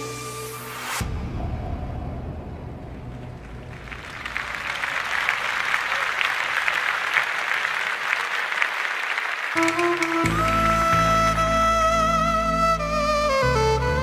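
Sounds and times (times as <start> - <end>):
music: 0.0 - 4.1, 9.6 - 14.0
audience applauding: 3.1 - 11.6.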